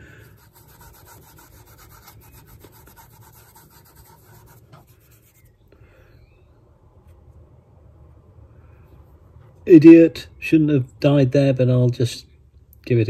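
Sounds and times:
dauber scrubbing on leather: 0.4 - 4.7.

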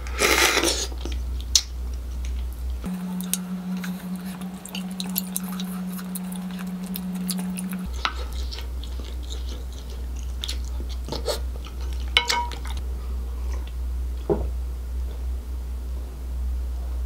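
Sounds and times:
low steady hum: 0.0 - 17.0
wet chewing: 0.2 - 12.8.

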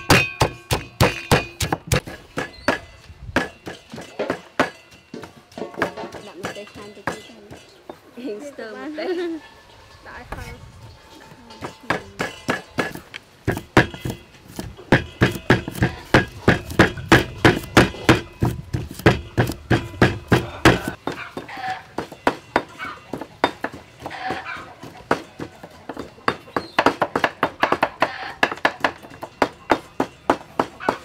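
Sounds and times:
cleaver chopping on wooden block: 0.0 - 4.8, 11.9 - 24.5
pestle pounding in stone mortar: 0.0 - 7.6, 11.6 - 31.0.

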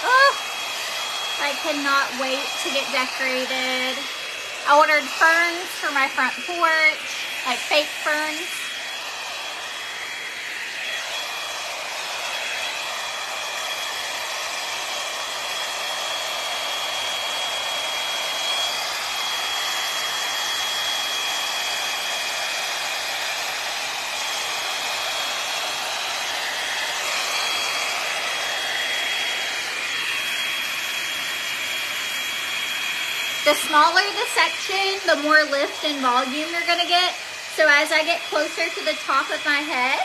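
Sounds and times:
hot-air brush blowing air: 0.0 - 40.0.

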